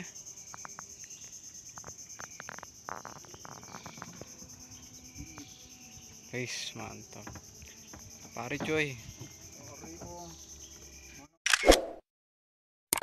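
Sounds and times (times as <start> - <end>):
insect chorus: 0.0 - 11.4
clicks and knocks in wooden boat: 6.8 - 10.3.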